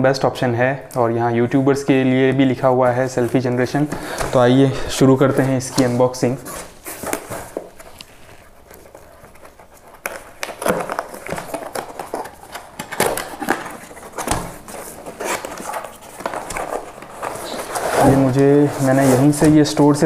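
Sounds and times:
cardboard scraping and crackling: 0:05.2 - 0:20.0.

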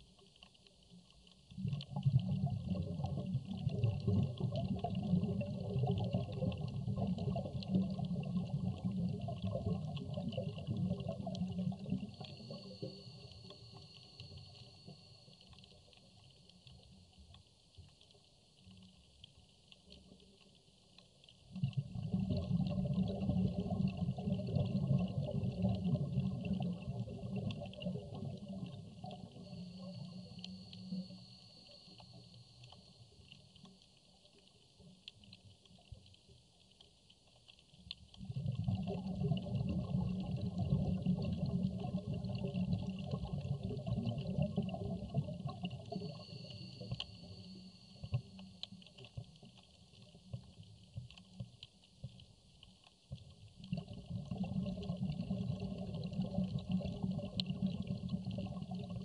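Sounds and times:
faint steady crackling: 0:00.0 - 0:59.0
low underwater bubbling rumble: 0:00.0 - 0:59.0.

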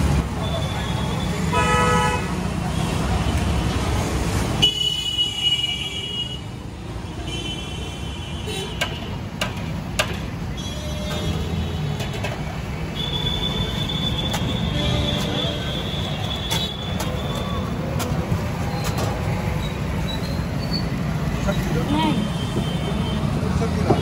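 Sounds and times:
traffic passing: 0:00.0 - 0:24.0
sharp metal taps: 0:08.8 - 0:10.4.

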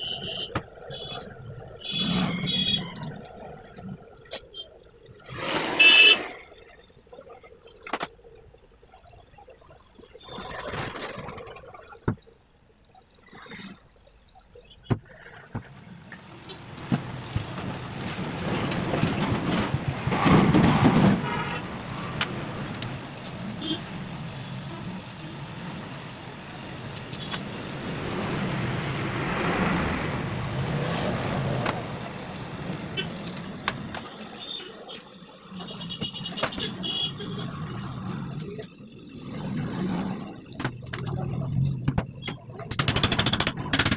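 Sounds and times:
passing traffic rumble: 0:15.9 - 0:43.9.

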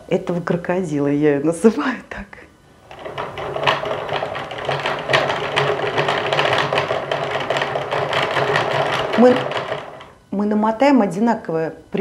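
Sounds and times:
yarn winder clattering: 0:02.8 - 0:10.2.

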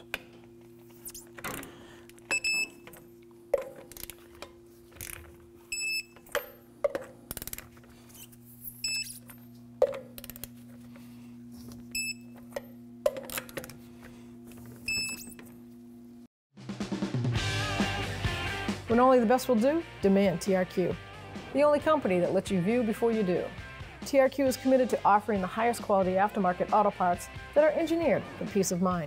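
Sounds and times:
torque wrench beeping: 0:02.2 - 0:03.0, 0:05.0 - 0:06.7, 0:07.3 - 0:09.6, 0:14.9 - 0:15.4.

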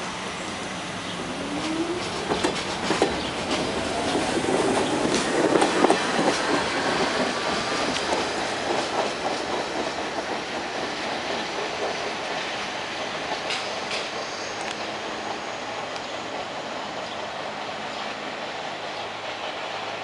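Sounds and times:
train wheels clacking over rail joints: 0:01.5 - 0:17.2.

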